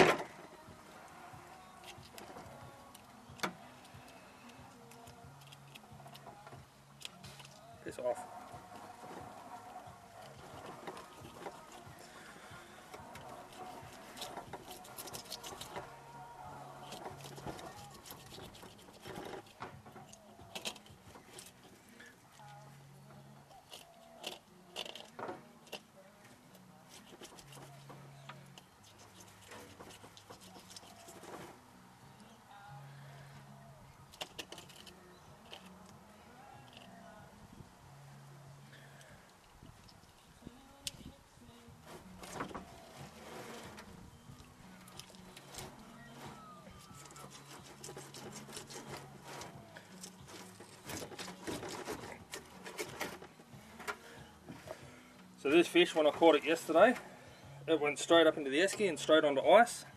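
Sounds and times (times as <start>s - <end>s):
blade scraping fish scales: 44.9s - 53.2s.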